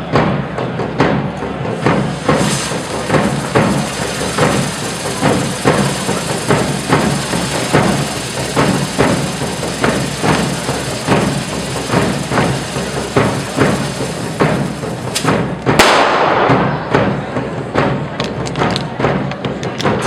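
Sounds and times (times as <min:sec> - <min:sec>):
drum beating march rhythm: 0:01.0 - 0:18.1
fireworks hissing sparks: 0:01.8 - 0:15.7.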